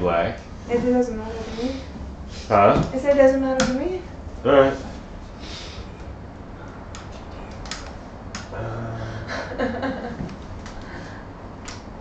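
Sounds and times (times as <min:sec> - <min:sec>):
faint murmured voice: 0:08.6 - 0:09.3.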